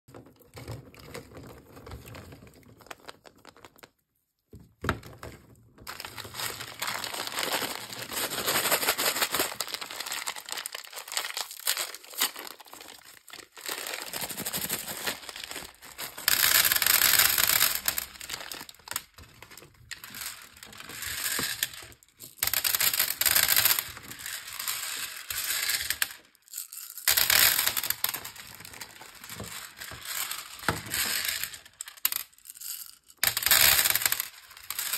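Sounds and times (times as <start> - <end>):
plastic wrappers crinkling and tearing: 5.9 - 19.2.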